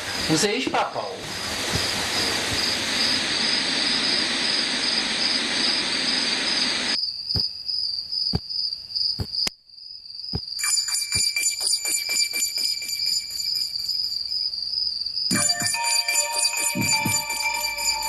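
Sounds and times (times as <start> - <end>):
loud even hiss: 0.0 - 7.0
night insects chirping: 0.0 - 18.0.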